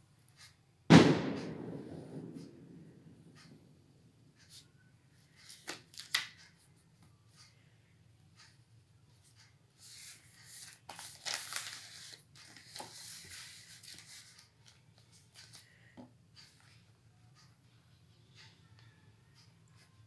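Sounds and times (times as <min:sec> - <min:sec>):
paper rustling and crackling: 0:05.4 - 0:06.5, 0:09.8 - 0:15.8
pencil strokes on paper: 0:08.4 - 0:15.6.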